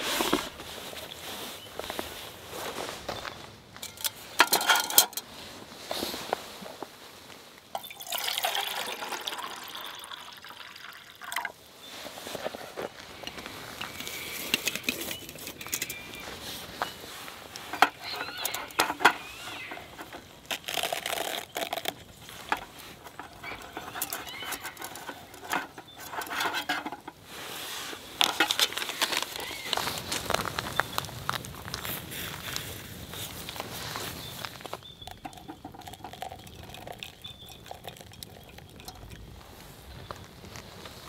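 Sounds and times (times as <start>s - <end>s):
small clinks: 3.8s - 5.2s, 35.0s - 39.8s
hot water pouring into a mug: 7.7s - 11.6s, 17.6s - 27.1s, 34.5s - 39.4s
paper bag rustling: 11.9s - 34.8s.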